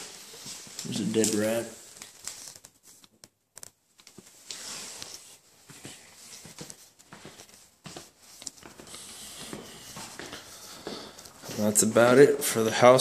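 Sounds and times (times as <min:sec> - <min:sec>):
footsteps on bare floors: 0:00.0 - 0:01.8, 0:04.1 - 0:12.5
clothing rustling: 0:00.0 - 0:12.1.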